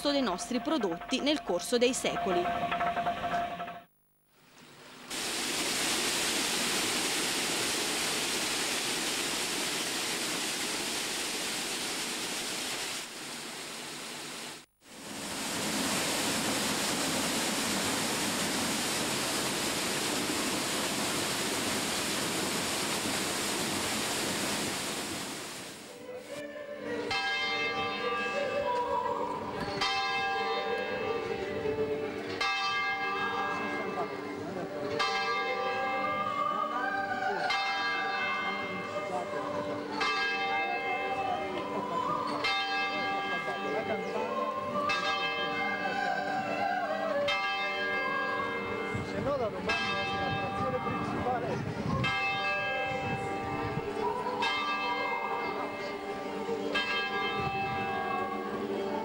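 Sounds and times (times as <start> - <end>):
rushing water: 4.6 - 26.0
church bells ringing: 26.9 - 59.0.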